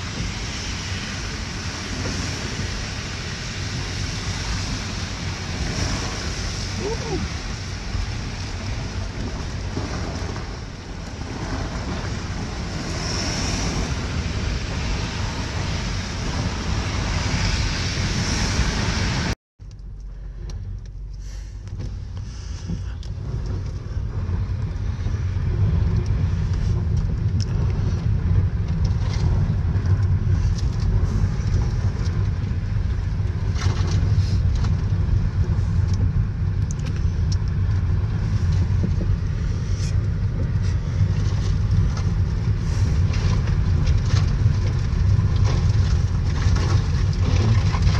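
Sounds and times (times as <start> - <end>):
tyres hissing on wet road: 0.0 - 19.4, 34.0 - 36.6, 37.9 - 43.8
low road and engine rumble: 0.0 - 47.9.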